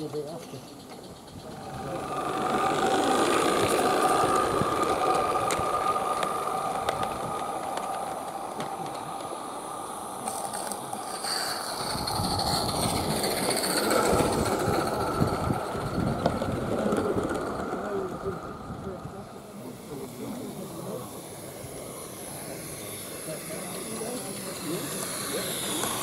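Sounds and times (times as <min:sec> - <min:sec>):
model train wheels clicking: 0:00.0 - 0:26.0
steady whine: 0:00.0 - 0:26.0.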